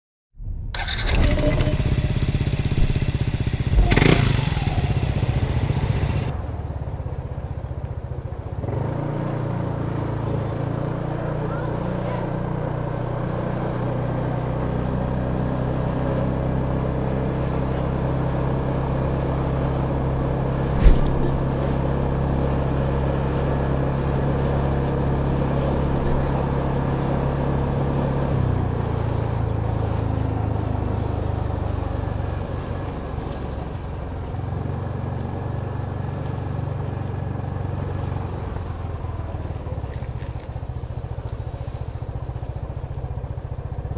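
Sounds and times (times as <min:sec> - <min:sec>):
scooter engine running: 0:00.8 - 0:07.0, 0:40.6 - 0:43.9.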